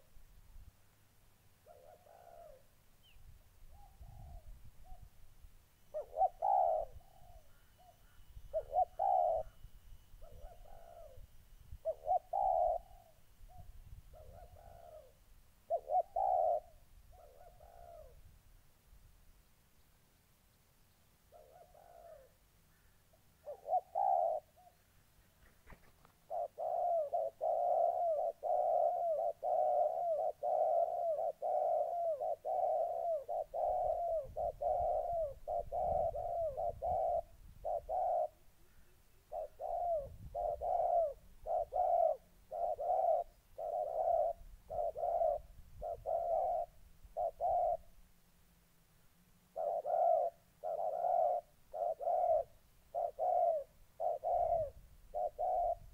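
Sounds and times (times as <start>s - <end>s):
doves cooing: 1.5s - 2.8s, 3.7s - 5.2s, 5.9s - 18.3s, 21.2s - 48.0s, 49.5s - 55.9s.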